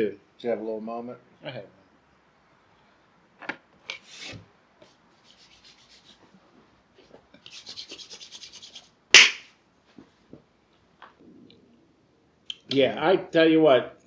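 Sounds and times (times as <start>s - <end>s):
rubbing handling noise: 3.8s - 10.6s
sharp knock: 9.2s - 9.5s.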